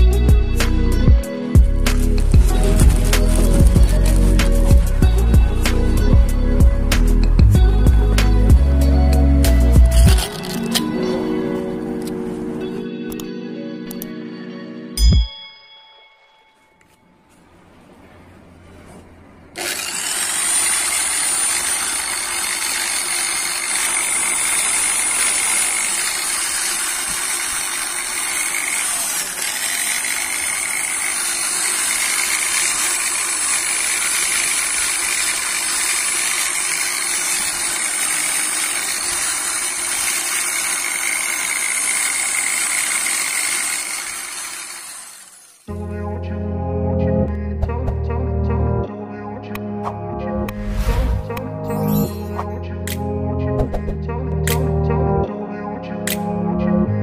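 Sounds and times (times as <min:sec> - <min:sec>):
electric polisher whining: 0:01.6 - 0:06.0, 0:19.6 - 0:45.8.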